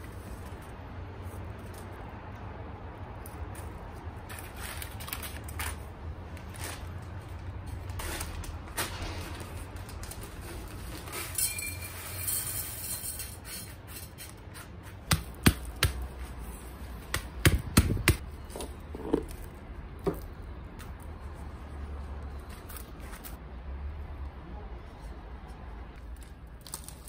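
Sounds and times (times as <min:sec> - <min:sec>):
potting soil rustling and scraping: 0:00.0 - 0:02.0, 0:03.5 - 0:15.1, 0:18.2 - 0:20.3.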